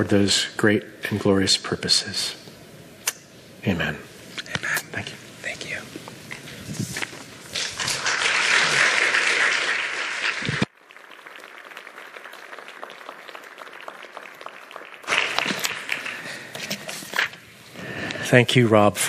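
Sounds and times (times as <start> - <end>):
congregation applauding: 7.6 - 16.8.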